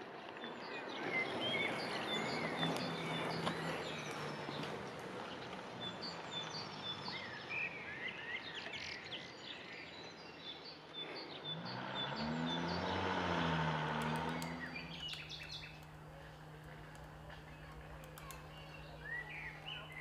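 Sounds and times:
birds calling and singing: 0.4 - 20.0
low engine drone: 11.4 - 20.0.

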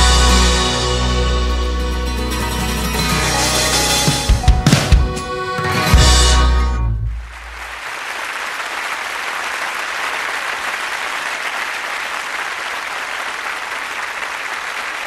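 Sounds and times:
hands clapping: 7.3 - 15.0.

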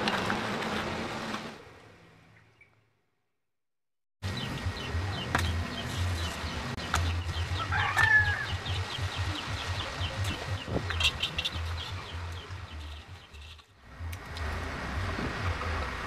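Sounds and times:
pulsing low hum: 4.2 - 16.0.

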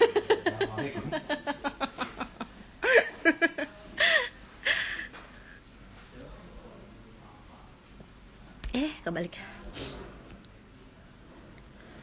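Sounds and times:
woman laughing: 0.0 - 5.0.

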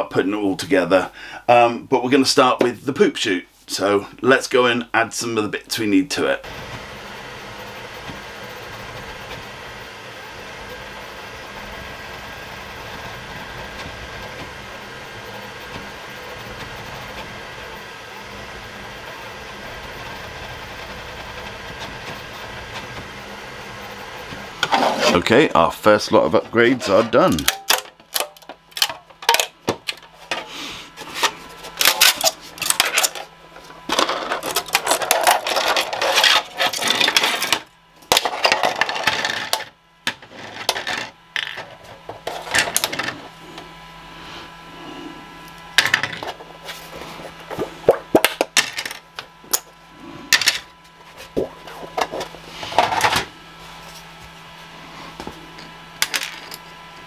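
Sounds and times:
plastic scraper rasping: 24.6 - 25.3, 30.2 - 37.6
plastic parts clattering on bench: 26.7 - 43.2, 45.8 - 46.4, 47.5 - 49.7, 50.3 - 50.7, 51.7 - 53.3, 56.0 - 56.6.

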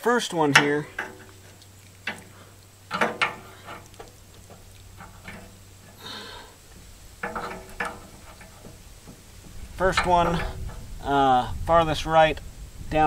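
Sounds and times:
clicks and knocks of fittings: 0.5 - 6.1, 6.7 - 10.9.

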